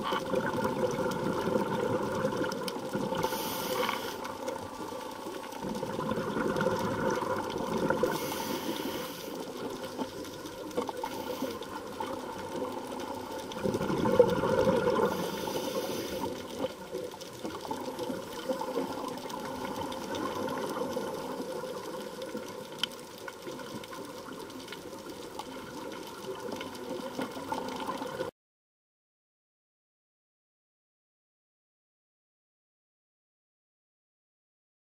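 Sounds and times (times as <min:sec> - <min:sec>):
underwater breathing bubbles: 0:00.0 - 0:22.8.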